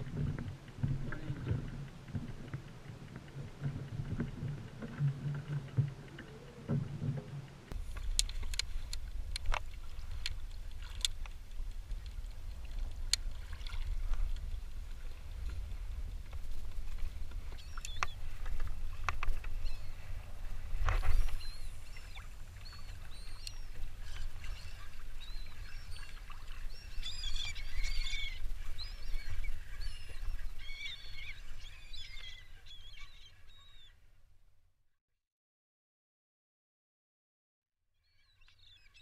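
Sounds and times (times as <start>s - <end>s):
wind rumble on microphone: 0.0s - 32.0s
seabirds chirping: 16.9s - 34.0s.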